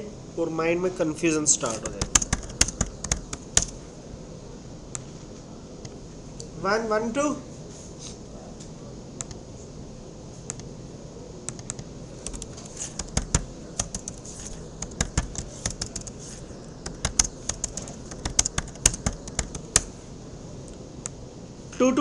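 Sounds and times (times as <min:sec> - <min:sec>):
keyboard typing: 0:01.6 - 0:03.8, 0:11.5 - 0:19.9.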